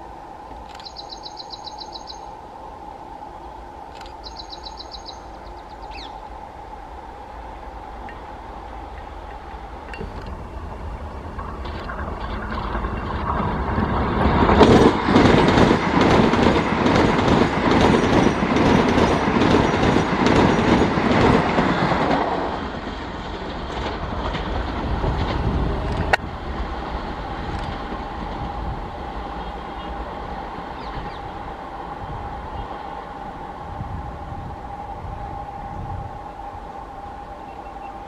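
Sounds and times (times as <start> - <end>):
electric train passing: 0.0 - 38.0
wheels clattering over rail joints: 8.9 - 28.6.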